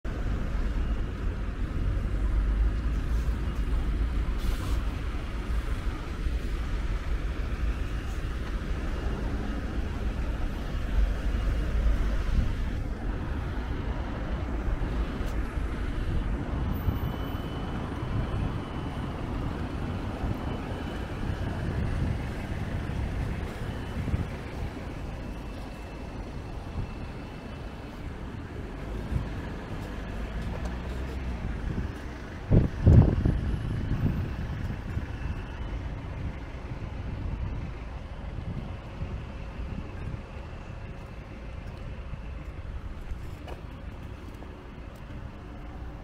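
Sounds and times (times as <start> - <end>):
road traffic rumble: 0.0 - 46.0.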